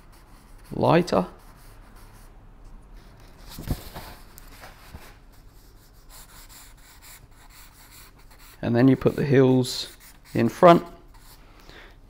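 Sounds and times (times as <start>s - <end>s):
pencil scratching on paper: 0.0s - 2.3s, 5.4s - 11.4s.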